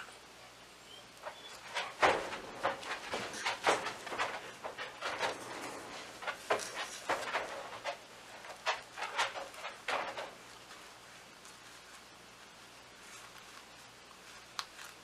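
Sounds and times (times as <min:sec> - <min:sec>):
hands rustling in potting soil: 0:10.3 - 0:15.0.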